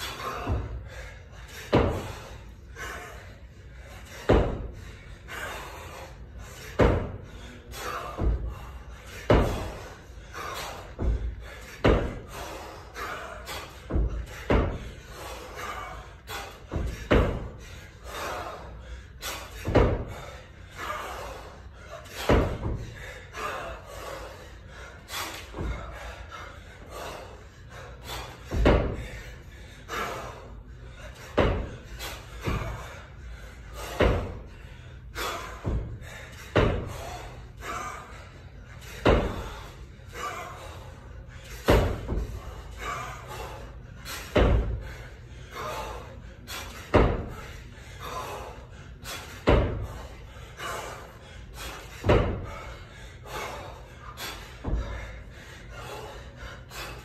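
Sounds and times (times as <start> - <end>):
kettlebell thuds: 0.1 - 2.4, 4.1 - 4.8, 6.6 - 18.3, 19.2 - 21.2, 22.1 - 23.6, 25.4 - 26.2, 28.0 - 30.4, 31.1 - 38.1, 38.8 - 40.3, 41.5 - 46.0, 46.6 - 48.4, 49.0 - 51.0, 51.6 - 53.6, 54.2 - 55.1.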